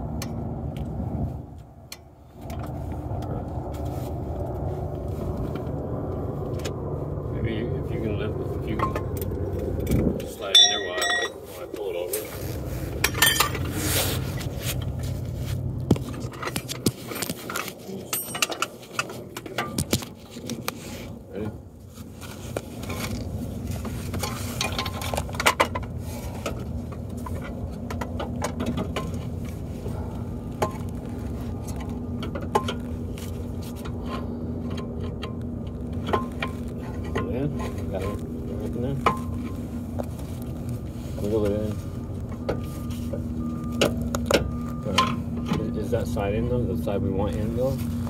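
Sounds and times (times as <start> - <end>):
steady low hum: 0.0 - 48.0
metal tools clinking and scraping: 10.3 - 12.4, 13.0 - 14.5, 16.2 - 20.6, 23.8 - 27.5
sharp metal knocks: 10.5 - 11.4.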